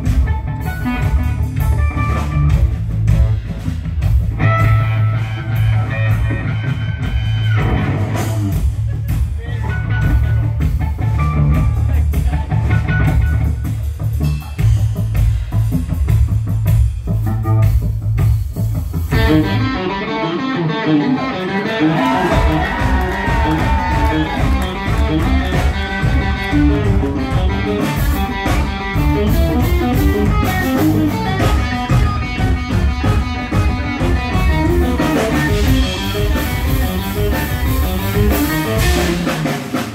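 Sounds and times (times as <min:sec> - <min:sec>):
live rock band playing: 0:00.0 - 0:39.9.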